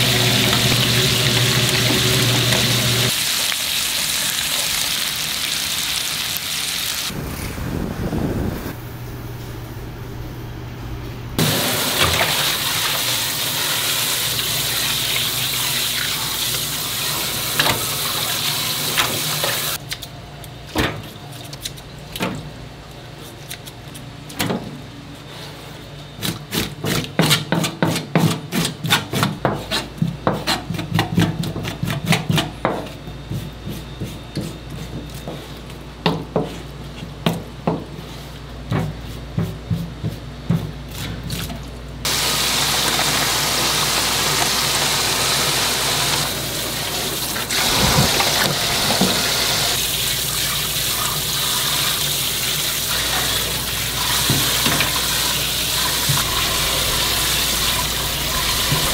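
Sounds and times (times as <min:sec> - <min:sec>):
tap water running into sink: 0:00.0 - 0:03.2, 0:42.1 - 0:58.9.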